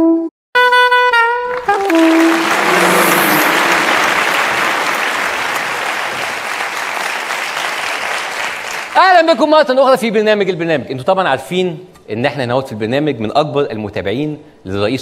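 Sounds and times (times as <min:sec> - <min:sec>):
studio audience applauding: 0:01.5 - 0:09.3
brass jingle notes: 0:01.6 - 0:06.2.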